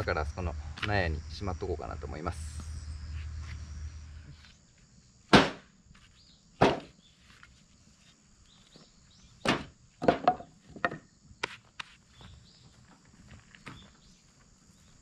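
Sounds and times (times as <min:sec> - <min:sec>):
firewood dropped into wheelbarrow: 0:06.6 - 0:07.0, 0:09.4 - 0:11.0.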